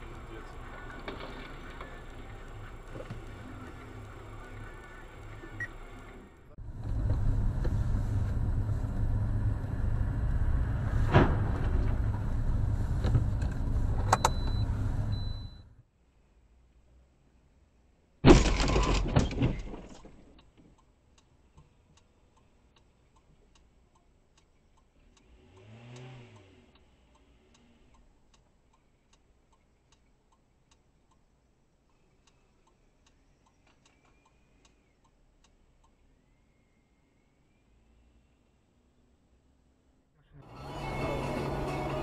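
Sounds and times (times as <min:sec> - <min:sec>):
faint regular ticking: 0:00.0 - 0:06.1, 0:20.4 - 0:36.5
loud car crash: 0:10.8 - 0:12.4, 0:18.2 - 0:20.1
engine revving: 0:25.0 - 0:27.9, 0:40.4 - 0:42.0.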